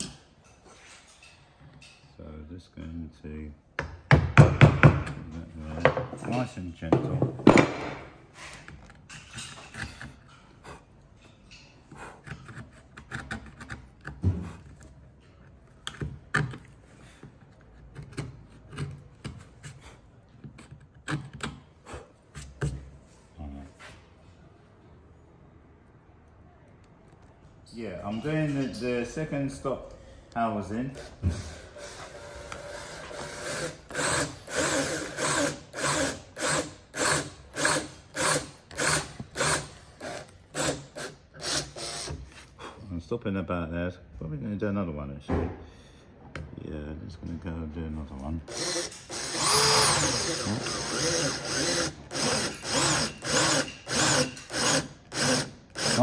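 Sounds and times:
drill boring into wood: 30.9s - 42.2s, 48.5s - 56.0s
chisel cutting wood: 48.5s - 56.0s.

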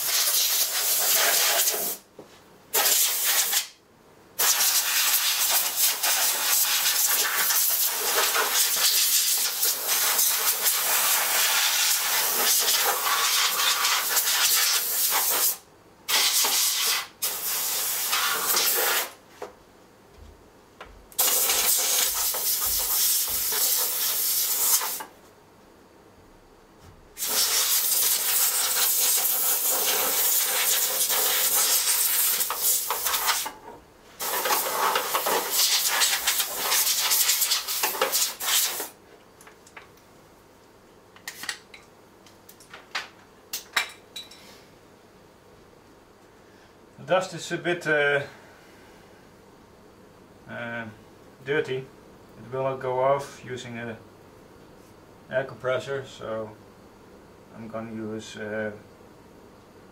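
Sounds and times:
compressed air hissing: 0.0s - 2.0s, 2.7s - 3.7s, 4.4s - 19.2s, 21.2s - 25.1s, 27.2s - 33.5s, 34.1s - 39.0s.

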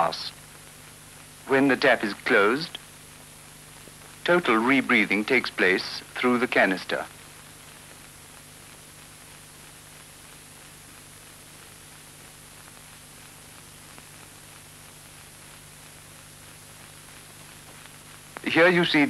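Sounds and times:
film soundtrack hiss and hum: 0.0s - 19.0s.

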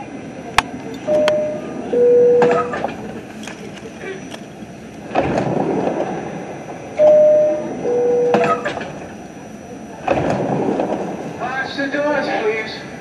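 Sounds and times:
train doors sliding shut: 0.8s - 9.2s, 10.0s - 11.4s
two-tone door chime: 1.0s - 2.9s, 6.0s - 11.2s.

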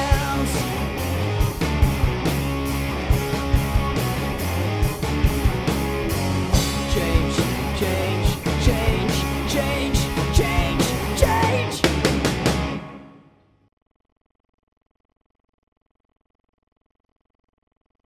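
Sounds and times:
drum fill: 0.0s - 13.3s
rock band playing: 0.0s - 13.4s.

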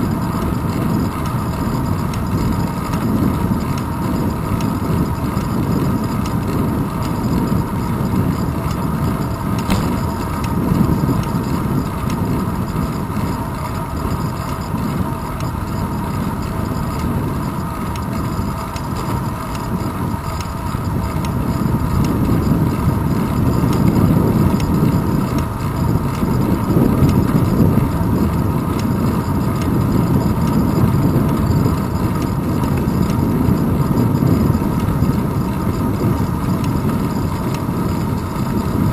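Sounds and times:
bicycle road noise: 0.0s - 38.9s
wind rumble: 0.0s - 38.9s.

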